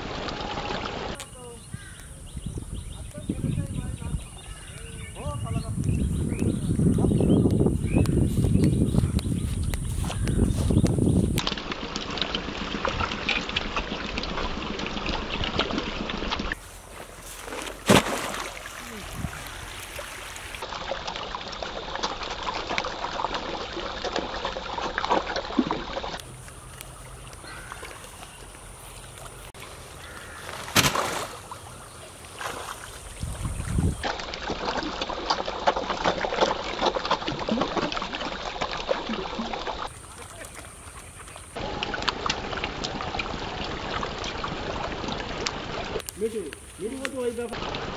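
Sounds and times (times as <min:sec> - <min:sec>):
fish splashing at water surface: 0:11.4 - 0:47.9.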